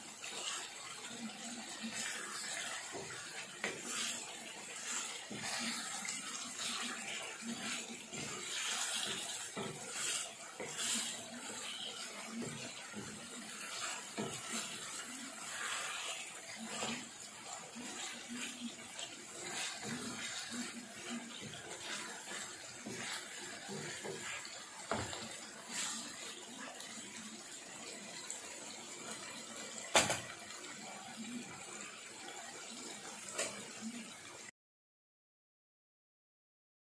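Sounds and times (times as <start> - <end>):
sauce bubbling in a pan: 0.0 - 34.5
wooden spatula scraping a pan: 0.2 - 27.5.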